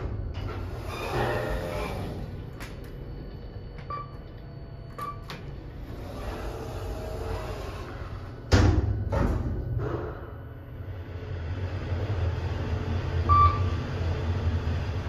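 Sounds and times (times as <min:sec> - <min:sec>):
steady low hum: 0:00.0 - 0:15.0
short beeps: 0:13.3 - 0:13.6.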